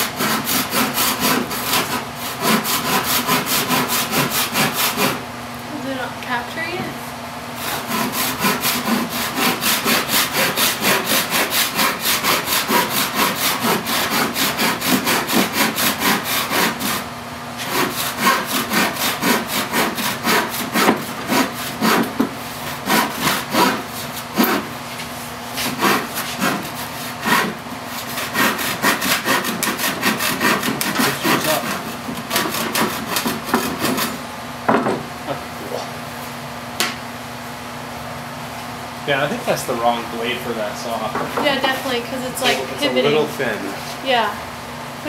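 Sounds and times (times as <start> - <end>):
hand saw cutting board: 0.0 - 5.2, 7.6 - 34.2.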